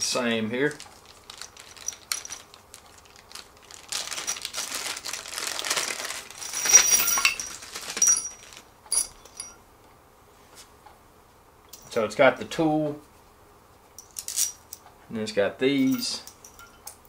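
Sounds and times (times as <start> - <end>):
plastic bag crinkling: 0.6 - 8.7
bolts clinking: 6.3 - 9.6, 15.7 - 17.0
bolts jingling: 6.3 - 9.6.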